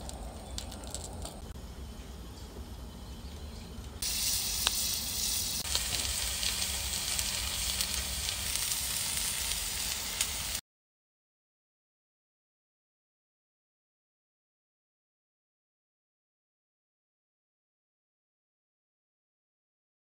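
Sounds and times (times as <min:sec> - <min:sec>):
steak sizzling on griddle: 0:04.0 - 0:10.6.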